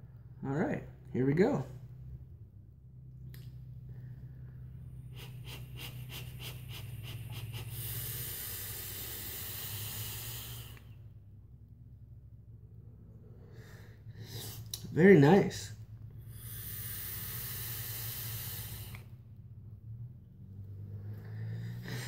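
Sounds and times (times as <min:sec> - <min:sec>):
breathy vapour exhale hiss: 0:04.3 - 0:11.2, 0:13.4 - 0:14.9, 0:16.2 - 0:19.2, 0:20.8 - 0:22.0
vape drag: 0:05.1 - 0:11.0, 0:16.3 - 0:19.1.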